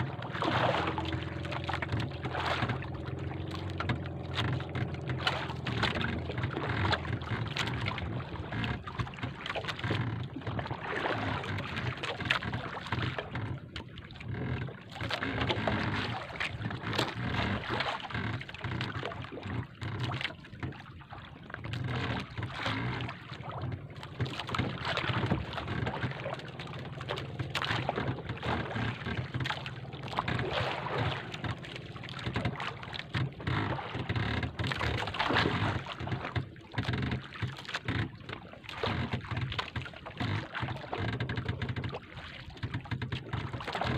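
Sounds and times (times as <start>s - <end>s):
rushing water and air: 0.0s - 14.6s, 21.8s - 38.0s
boat engine hum: 0.0s - 43.9s.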